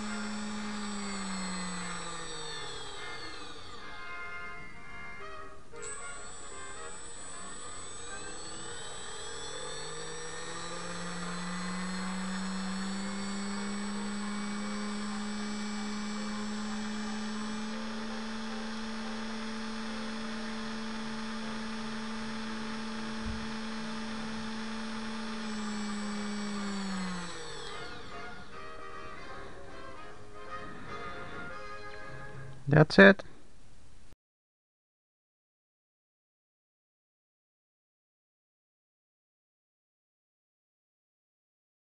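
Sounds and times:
small electric motor whining: 0.0 - 32.0.

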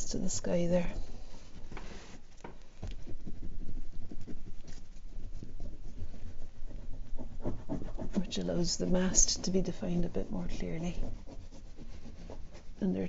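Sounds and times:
oil pastel scratching on painting: 0.0 - 13.0.

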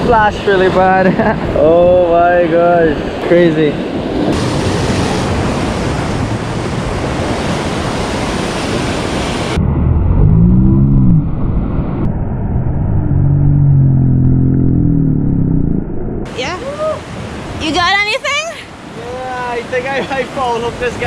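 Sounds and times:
wind buffeting microphone: 0.0 - 18.1
heavy rumble: 4.0 - 16.5
surf breaking over rocks: 4.3 - 9.6.

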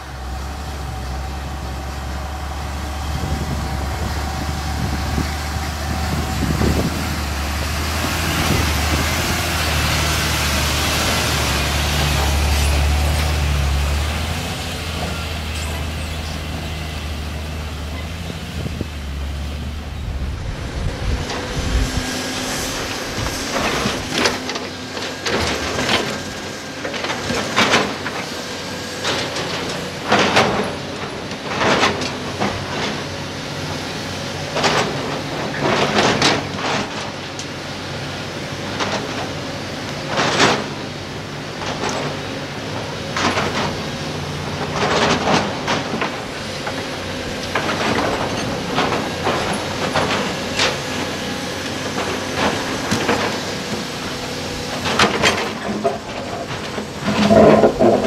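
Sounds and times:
excavator diesel engine running: 0.0 - 58.0
bucket scraping against rocks: 48.0 - 58.0.

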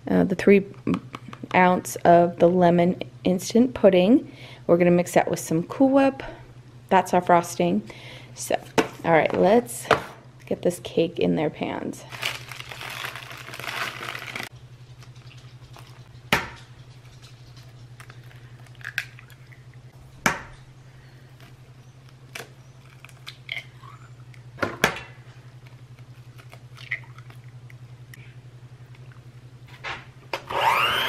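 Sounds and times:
cake mix poured from paper bag: 12.1 - 14.5.

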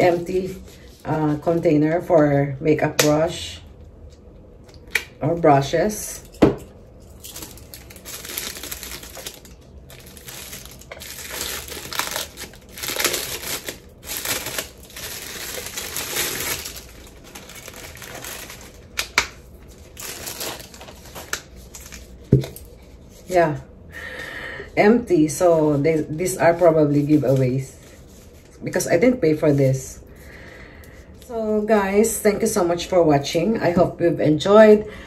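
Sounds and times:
plastic bag crinkling: 7.0 - 22.7.

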